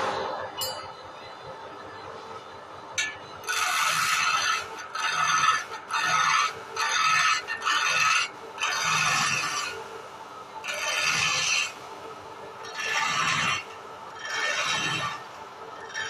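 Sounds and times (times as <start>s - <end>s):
chisel scraping wood on lathe: 3.4s - 9.8s, 10.6s - 11.8s, 12.6s - 15.2s, 15.8s - 16.0s.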